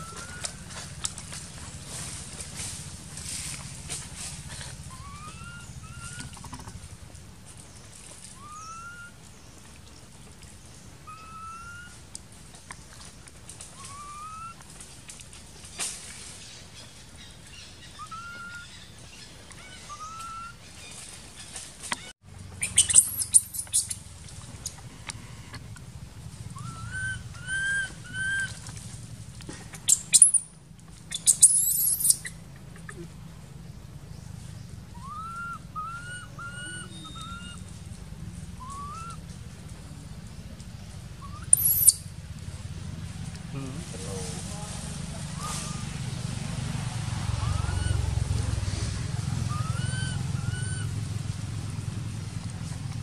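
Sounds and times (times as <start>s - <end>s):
baby monkey crying: 35.0s - 37.6s, 47.4s - 48.1s.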